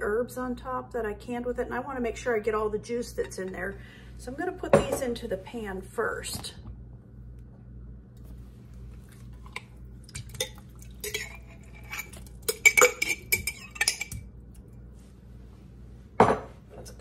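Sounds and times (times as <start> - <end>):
metal spoon clinking on glass jar: 11.0 - 14.2.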